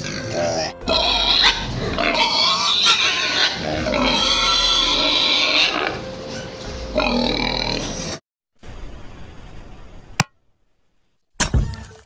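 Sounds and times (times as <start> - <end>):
pigs squealing: 0.0 - 8.2.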